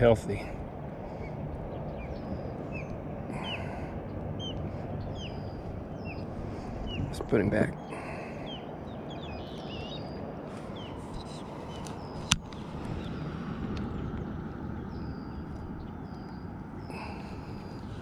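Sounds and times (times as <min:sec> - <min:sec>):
steady low rumble: 0:00.0 - 0:18.0
faint bird chirps: 0:01.2 - 0:13.3.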